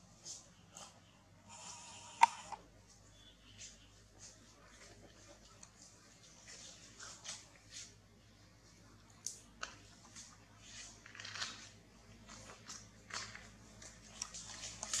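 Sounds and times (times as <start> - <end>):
monkey eating crunches: 9.2 - 15.0.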